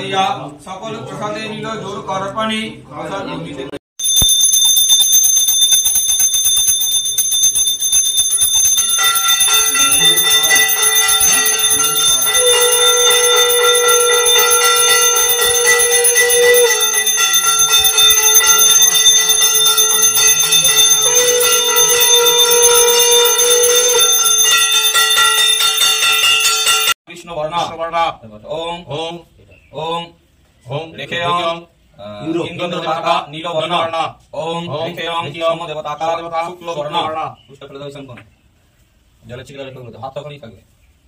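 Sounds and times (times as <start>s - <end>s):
hand bell ringing rapidly: 4.0s - 27.0s
long held ringing tones: 4.0s - 27.0s.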